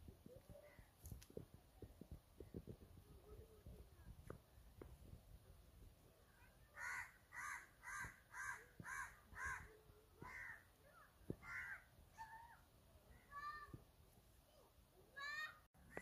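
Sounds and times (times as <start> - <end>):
crow cawing: 6.8 - 10.6, 11.4 - 11.9.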